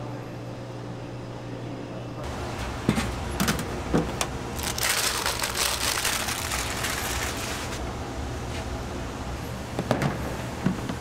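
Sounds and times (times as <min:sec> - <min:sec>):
parchment paper crinkling: 0:04.6 - 0:07.8.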